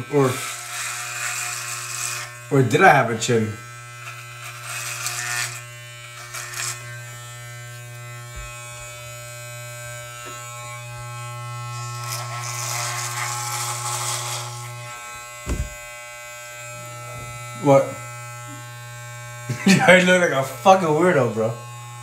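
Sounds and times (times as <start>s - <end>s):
electric hair clippers buzzing: 0.0s - 22.0s
clipper blades cutting beard: 0.1s - 2.6s, 3.6s - 20.9s.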